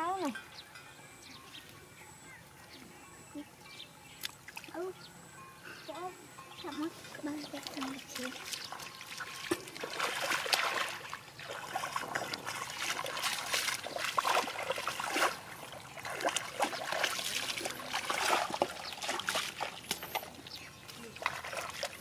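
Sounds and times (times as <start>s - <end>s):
hands splashing in muddy water: 7.7s - 20.3s.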